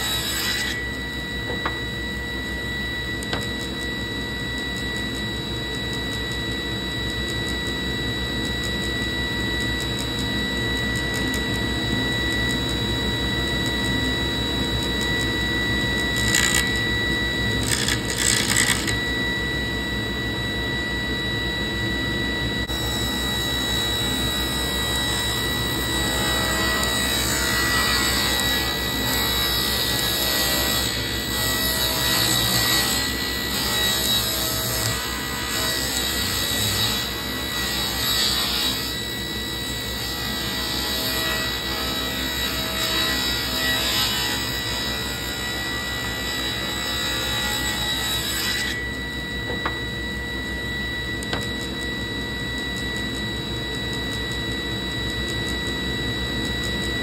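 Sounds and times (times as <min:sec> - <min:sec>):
table saw cutting wood: 0:00.0 - 0:04.4, 0:09.6 - 0:19.3, 0:22.7 - 0:52.2.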